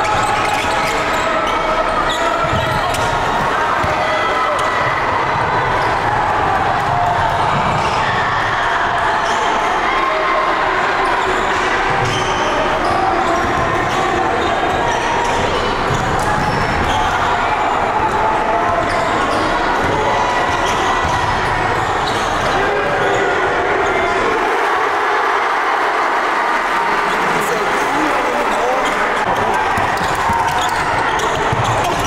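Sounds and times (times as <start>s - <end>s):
crowd noise: 0.0s - 32.0s.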